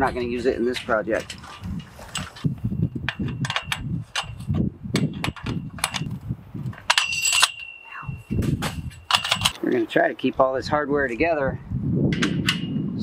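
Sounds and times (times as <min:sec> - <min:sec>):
metal tubing and chain-link clanking: 0:00.0 - 0:10.2
metal tube ringing: 0:06.9 - 0:09.6.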